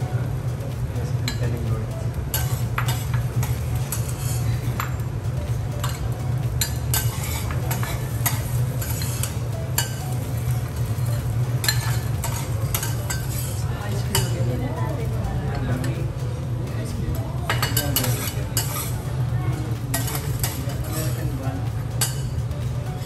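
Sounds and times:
steady low hum: 0.0s - 23.0s
light sizzle: 2.0s - 16.3s, 17.2s - 23.0s
metal spatulas scraping griddle: 2.3s - 5.0s, 6.6s - 14.4s, 17.5s - 19.0s, 19.9s - 21.3s.

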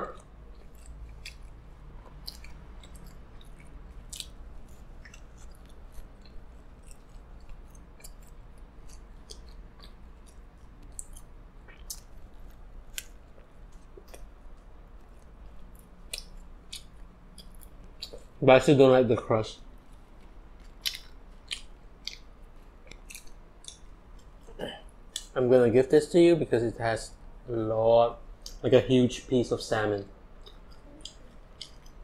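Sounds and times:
person chewing pizza: 0.0s - 18.4s, 19.6s - 25.4s, 30.0s - 32.0s.

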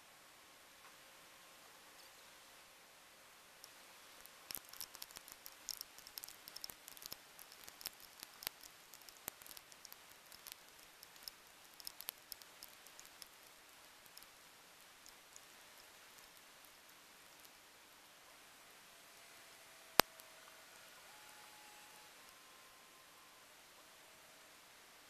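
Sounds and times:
faint steady hiss: 0.0s - 25.0s
raindrops striking camera: 3.6s - 17.7s.

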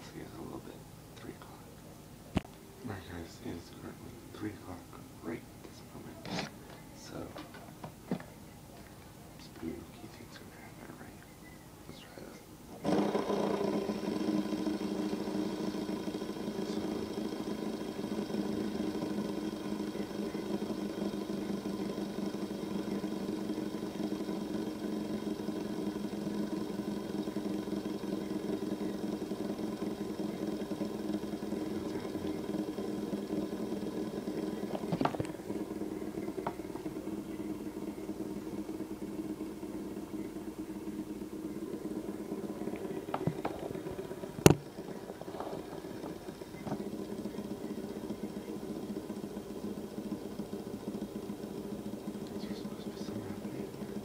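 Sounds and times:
fidget spinner whirring: 12.2s - 54.0s.

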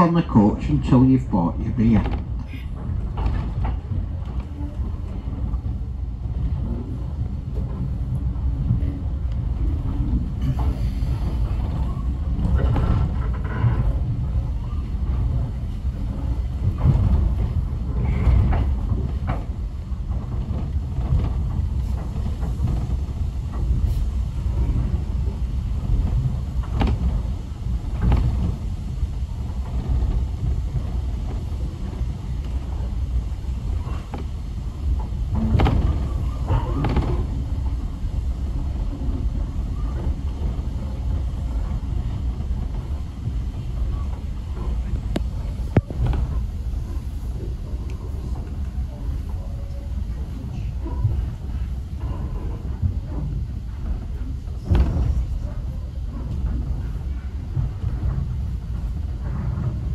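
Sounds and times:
train carriage rumbling: 0.0s - 59.9s
short clunks and knocks: 2.0s - 4.5s, 26.0s - 27.2s, 35.0s - 37.8s, 54.6s - 55.4s.

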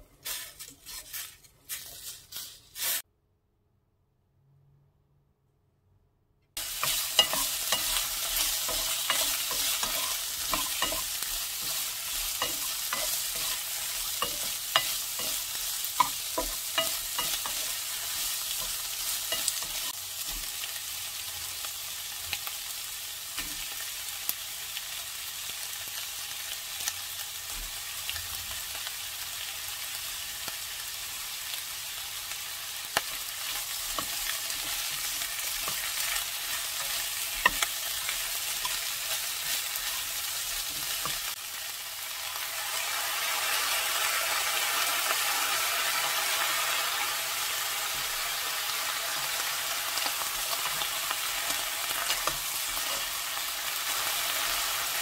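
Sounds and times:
food sizzling in a frying pan: 0.0s - 3.0s, 6.6s - 55.0s
spatula scraping and tapping pan: 6.7s - 20.5s, 33.0s - 41.3s, 51.9s - 53.1s.

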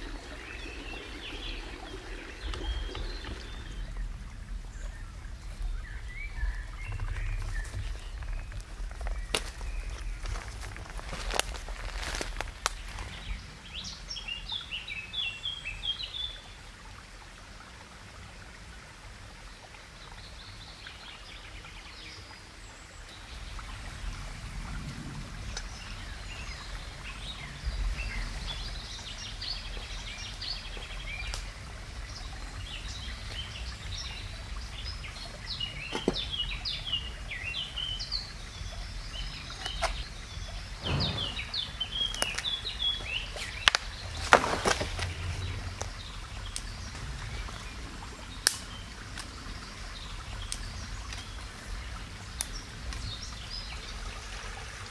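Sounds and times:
songbirds chirping: 0.0s - 54.9s
footsteps through undergrowth: 7.2s - 13.3s, 43.3s - 45.3s.

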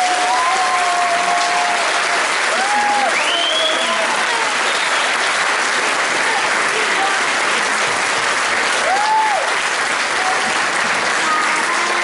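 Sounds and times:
audience applauding: 0.0s - 12.0s
shrill rising whistle: 3.2s - 4.0s.

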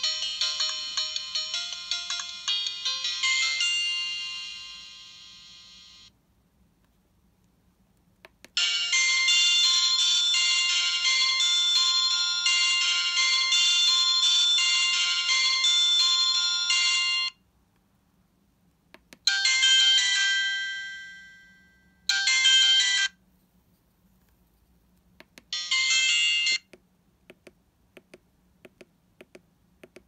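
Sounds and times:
keypad clicks: 25.2s - 25.5s, 26.6s - 30.0s.

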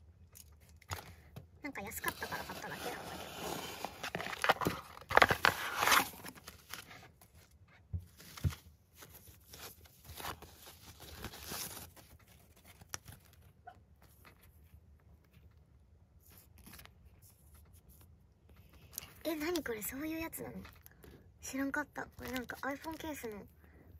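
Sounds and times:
tissue paper and plastic crinkling: 2.0s - 7.5s, 8.1s - 13.5s, 22.1s - 23.5s.

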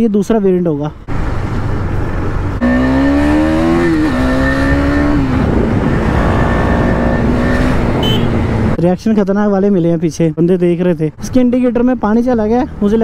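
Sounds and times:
road and wind rumble: 0.0s - 13.0s
motorcycle engine accelerating: 2.6s - 8.8s.

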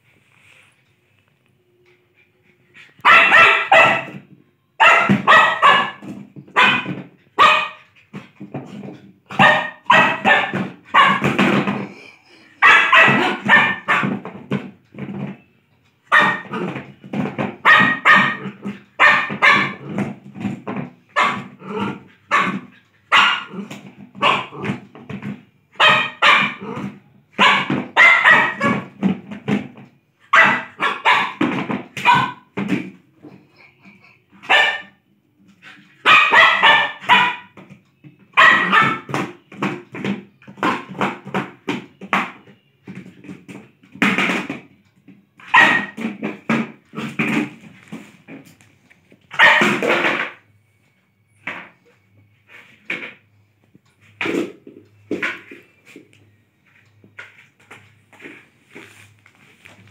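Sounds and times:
dog barking: 3.0s - 4.2s, 4.8s - 7.9s, 9.3s - 11.4s, 12.6s - 14.2s, 16.1s - 16.7s, 17.6s - 19.9s, 21.1s - 24.7s, 25.8s - 29.0s, 30.3s - 32.5s, 34.4s - 35.0s, 36.0s - 37.6s, 38.4s - 39.1s, 45.4s - 46.1s, 49.3s - 50.1s.

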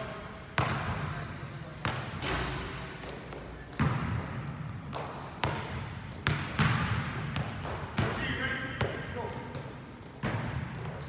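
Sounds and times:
sneaker squeak: 1.1s - 2.0s, 6.0s - 8.2s.

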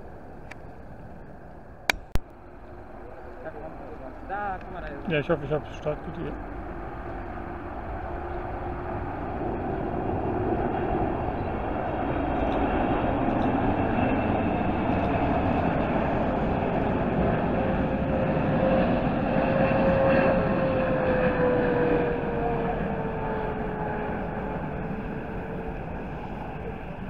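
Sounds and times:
jet engine rumble: 0.0s - 27.0s
jet engine whining tone: 0.0s - 27.0s.

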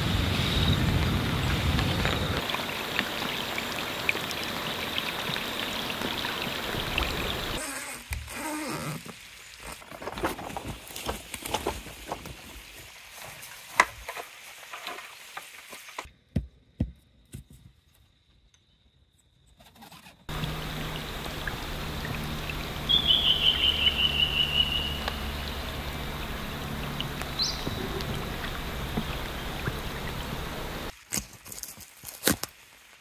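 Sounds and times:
rain falling on a river: 0.0s - 9.9s, 20.3s - 33.0s.

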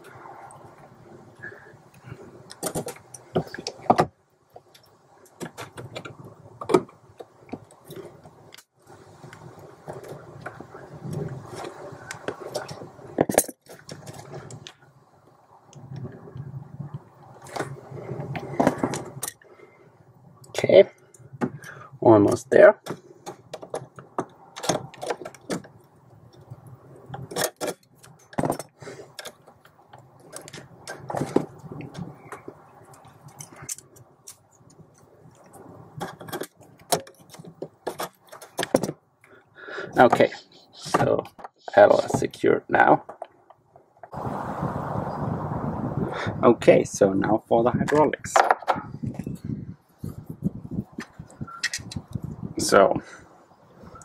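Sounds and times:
small metal clicks: 51.0s - 52.2s.

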